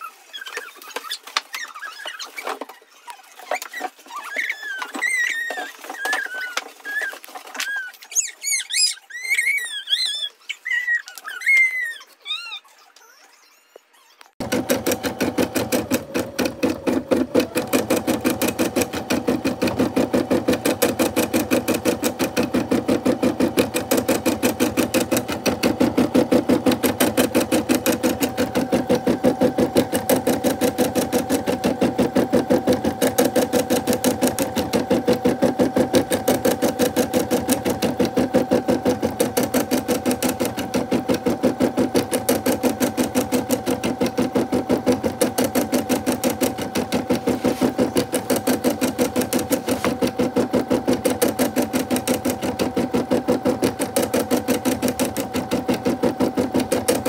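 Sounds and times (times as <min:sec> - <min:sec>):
embroidery machine stitching: 0:14.4 - 0:57.0.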